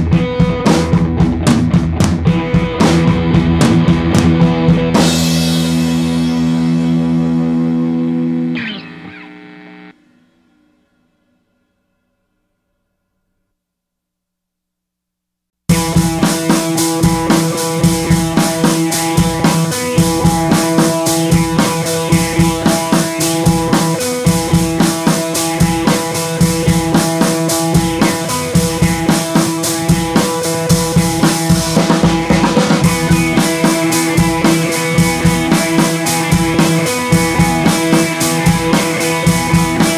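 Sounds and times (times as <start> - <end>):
drum-kit beat: 0.0 - 7.5, 15.7 - 39.9
sustained pitched notes: 5.9 - 11.1.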